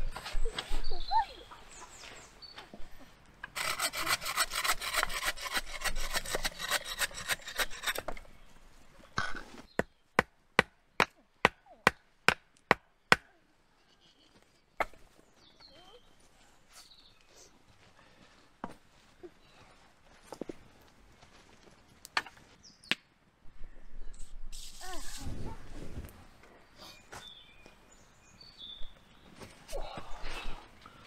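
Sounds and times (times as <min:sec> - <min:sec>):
hand saw cutting wood: 0:03.5 - 0:08.2.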